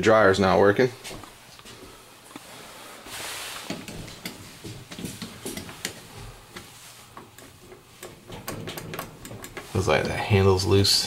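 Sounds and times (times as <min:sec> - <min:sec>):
short rustle: 0:01.0 - 0:04.6
handling clicks and knocks: 0:03.7 - 0:10.5.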